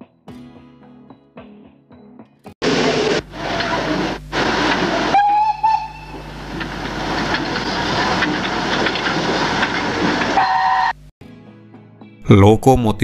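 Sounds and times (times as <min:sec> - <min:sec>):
steam locomotive whistle: 0:02.6 - 0:08.5, 0:10.0 - 0:11.1
locomotive moving along track: 0:02.6 - 0:11.1.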